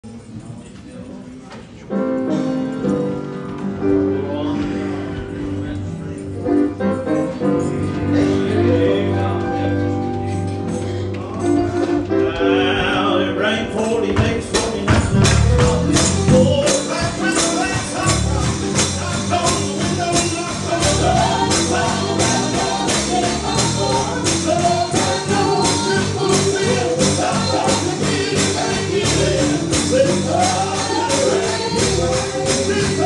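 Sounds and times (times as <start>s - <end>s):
gospel singing: 7.9s - 33.0s
tambourine beat: 14.2s - 33.0s.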